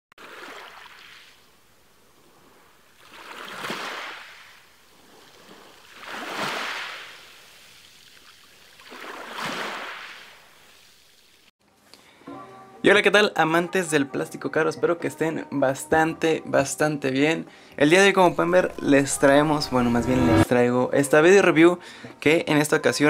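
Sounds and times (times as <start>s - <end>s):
rushes of noise: 18.2s - 20.5s.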